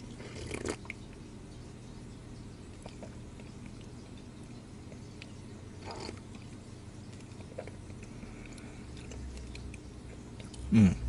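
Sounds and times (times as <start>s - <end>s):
low steady hum: 0.0s - 11.0s
person sipping a drink: 0.1s - 1.0s, 5.8s - 6.5s.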